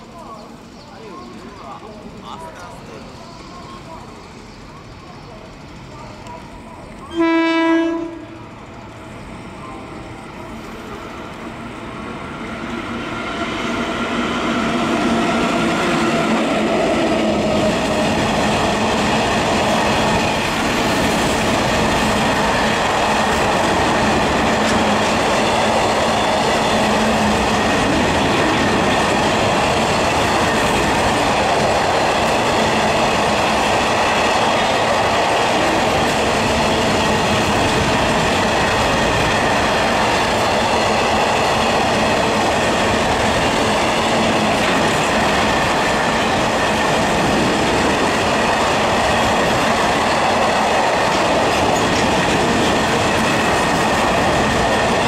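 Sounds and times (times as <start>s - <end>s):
train wheels rumbling on rails: 0.0s - 55.0s
locomotive horn blast: 7.1s - 8.4s.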